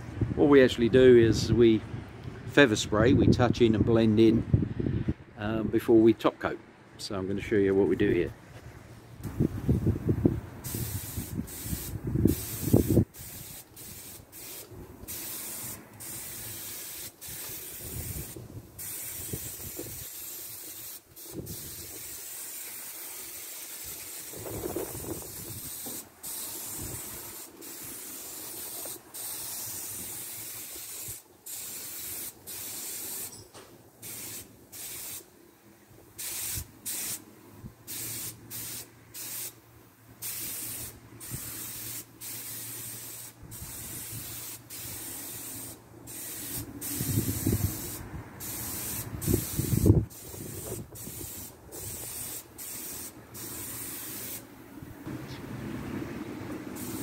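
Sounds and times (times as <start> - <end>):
paint spray gun hissing: 10.6 - 33.4, 34.0 - 35.3, 36.2 - 37.2, 37.9 - 39.6, 40.2 - 54.5, 56.8 - 57.0.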